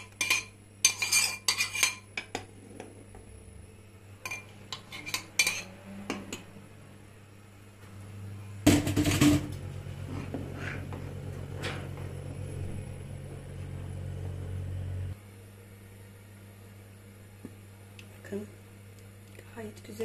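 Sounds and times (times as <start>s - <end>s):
metal cookware clattering: 0.0s - 2.4s, 4.2s - 6.5s, 8.7s - 9.6s
metal spoon stirring in a pot: 0.0s - 2.5s, 4.2s - 6.5s
steady low hum: 0.0s - 20.0s.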